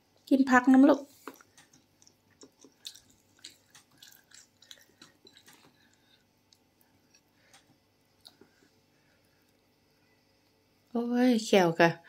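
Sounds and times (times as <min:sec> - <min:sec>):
faint chewing: 0:01.0 - 0:10.6.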